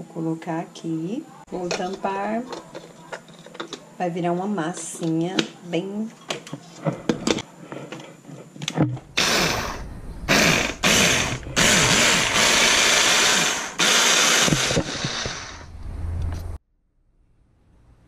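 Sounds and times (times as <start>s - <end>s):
hand blender motor running: 9.2s - 15.6s.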